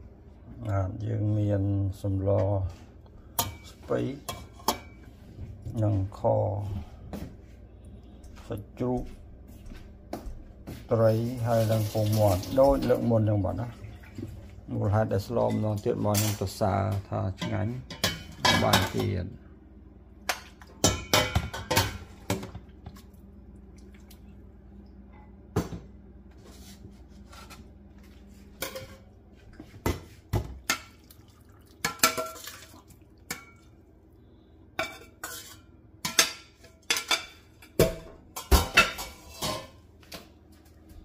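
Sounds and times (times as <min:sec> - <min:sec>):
steady low hum: 0:12.4 - 0:41.0
metal spoon scraping a pot: 0:34.8 - 0:36.2.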